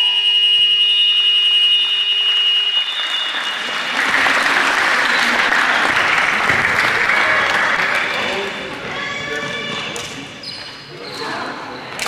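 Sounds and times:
scoreboard buzzer: 0.0 - 4.0
applause: 1.8 - 9.0.

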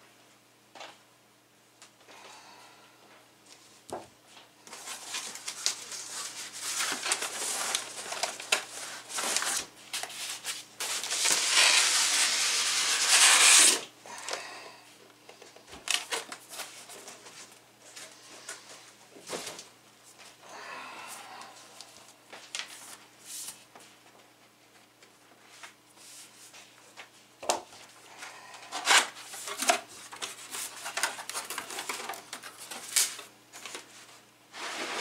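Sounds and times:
cardboard rubbing and scraping: 4.7 - 13.8, 34.5 - 35.0.

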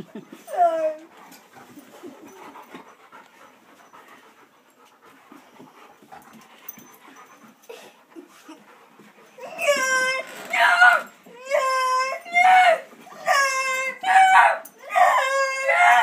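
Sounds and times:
dog panting softly: 0.0 - 9.5.

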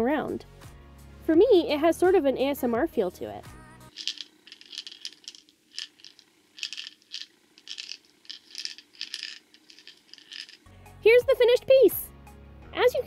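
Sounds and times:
ball bearings rattling in maze: 3.9 - 10.7.

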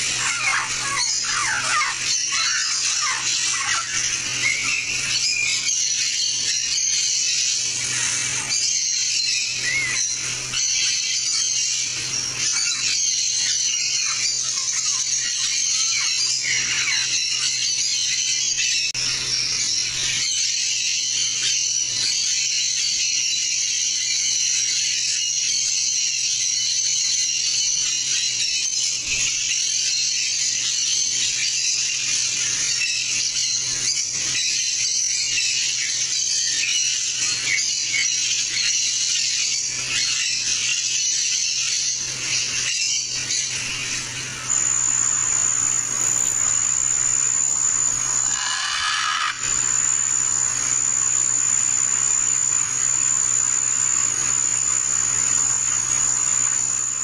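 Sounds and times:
shrill insect chorus buzzing: 0.0 - 7.0, 44.4 - 57.0
low steady hum: 44.5 - 48.5, 49.4 - 57.0.

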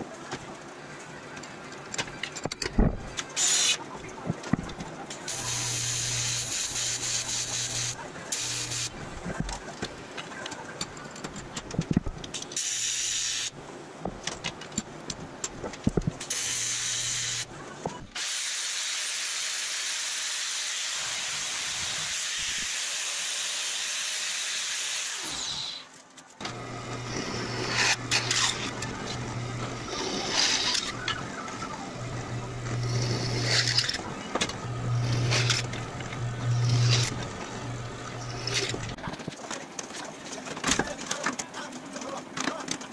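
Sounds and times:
angle grinder running: 5.3 - 9.0, 18.2 - 39.0
drill press drilling metal: 5.3 - 9.0, 26.4 - 39.0
welder arc buzzing: 5.3 - 9.0, 12.6 - 13.6, 16.3 - 17.5, 18.2 - 39.0.

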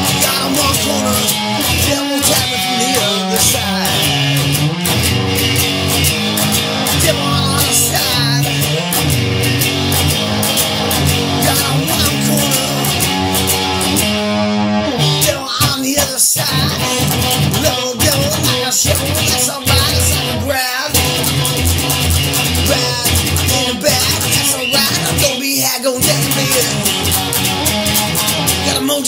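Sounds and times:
instrumental rock music: 0.0 - 29.0.

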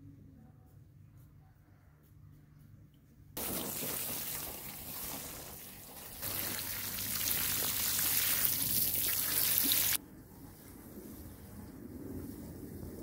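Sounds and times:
water spattering onto soil and leaves: 3.4 - 10.0.

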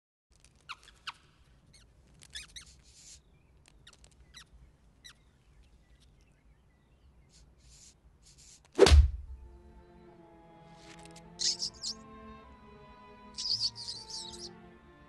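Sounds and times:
cartoon mouse squeaking: 0.7 - 3.2, 11.4 - 12.0, 13.4 - 14.5.

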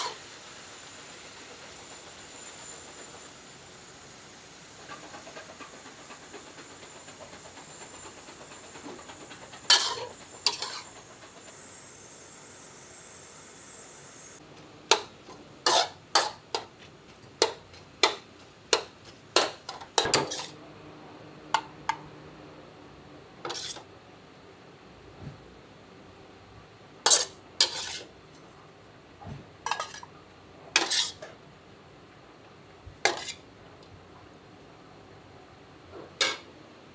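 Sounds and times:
faint sizzle: 0.0 - 4.8
metal spatula clanking on a wok: 14.9 - 16.7, 17.4 - 20.6, 27.1 - 28.0, 29.6 - 30.1, 30.8 - 31.2, 33.0 - 33.4, 36.2 - 36.5.

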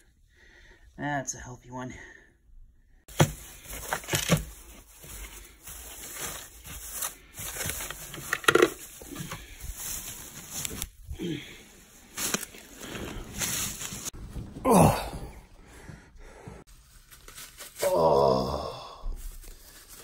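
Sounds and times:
plastic bag crinkling: 3.4 - 11.0, 11.8 - 14.2.

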